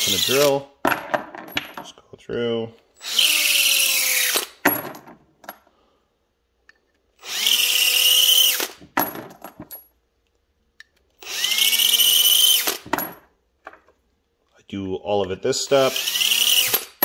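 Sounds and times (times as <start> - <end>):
cordless drill whining: 0.0 - 0.6, 3.0 - 4.6, 7.2 - 8.8, 11.2 - 12.8, 15.7 - 17.0.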